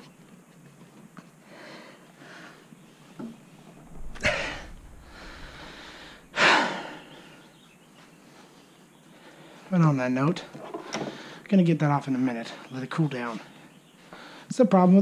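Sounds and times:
man breathing hard with effort: 1.4 - 2.7, 4.0 - 7.6.

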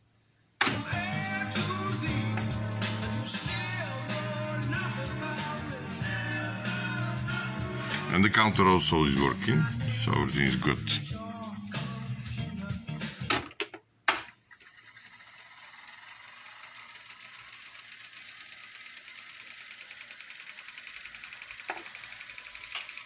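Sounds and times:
tape reels fast-winding whirr: 14.5 - 23.0.

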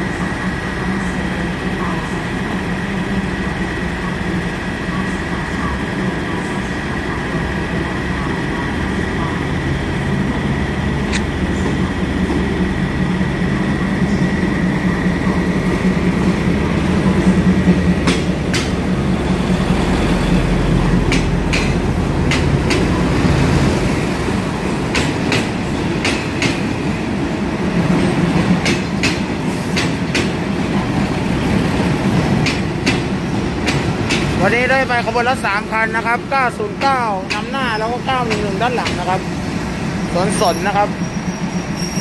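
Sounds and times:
diesel train engines humming: 0.0 - 42.0
train wheels clicking over rail joints: 17.2 - 19.0, 21.0 - 23.0, 24.7 - 26.8, 27.8 - 34.4, 38.2 - 39.1.

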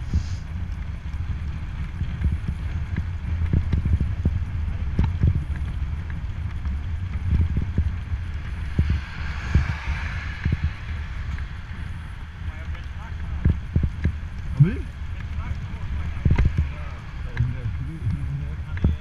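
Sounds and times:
wind buffeting microphone: 0.0 - 19.0
car passing: 6.8 - 19.0.

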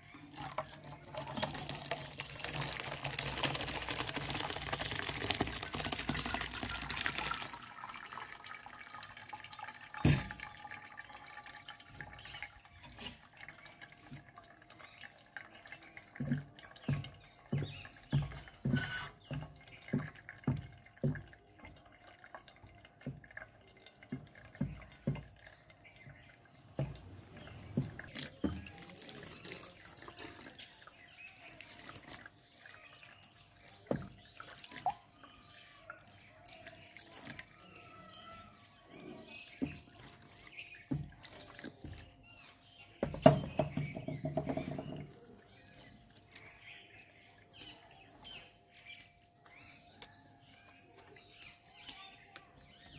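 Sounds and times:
water dripping: 0.0 - 52.9
skimmer pressing wet curds: 0.2 - 8.0.

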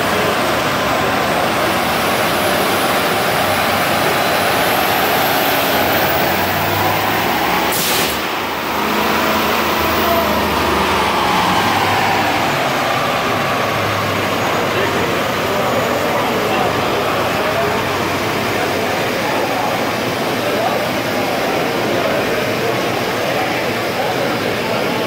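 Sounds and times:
diesel truck engine running hard: 0.0 - 25.0
short hiss: 7.7 - 8.3.

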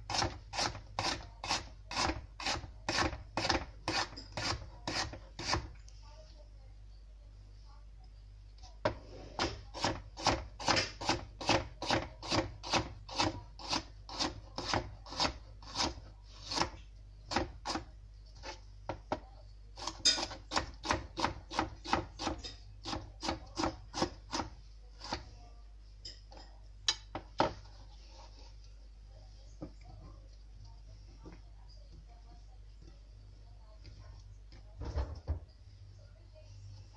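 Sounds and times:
knife chopping on plastic board: 0.1 - 5.8, 8.8 - 25.3, 26.9 - 27.7.

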